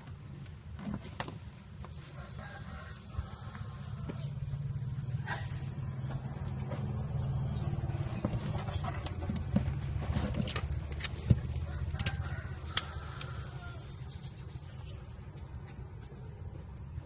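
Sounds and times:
turtle shells knocking and scraping: 7.8s - 13.5s.

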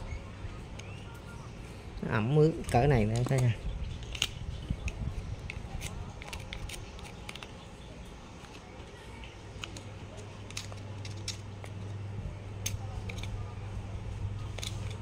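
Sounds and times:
low steady hum: 0.0s - 15.0s
screwdriver and metal parts clicking: 2.6s - 7.6s, 9.6s - 11.9s, 12.6s - 13.4s, 14.5s - 15.0s.

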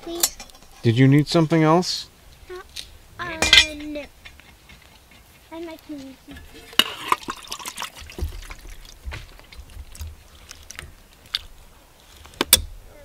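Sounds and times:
wet food sloshing into pot: 6.4s - 12.5s.

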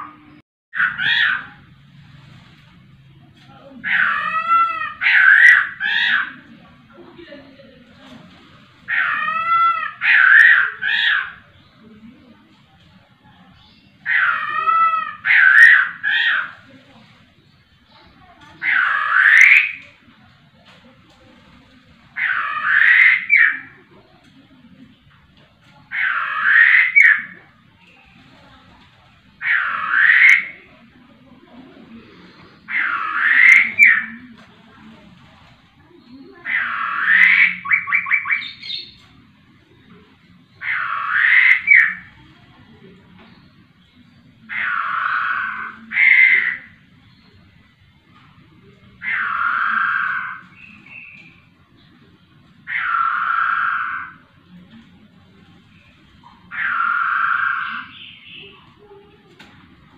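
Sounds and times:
bird calling loudly: 0.0s - 1.7s, 3.8s - 6.6s, 8.8s - 11.8s, 13.5s - 20.1s, 22.1s - 24.0s, 25.8s - 27.7s, 28.4s - 30.9s, 31.8s - 34.5s, 36.0s - 42.4s, 43.1s - 48.4s, 49.0s - 54.5s, 55.7s - 59.2s.

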